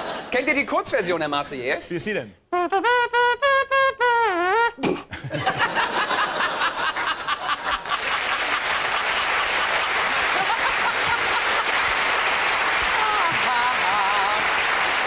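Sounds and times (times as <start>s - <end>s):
audience laughing: 5.2s - 12.2s, 12.8s - 14.6s
audience applause: 6.7s - 15.0s.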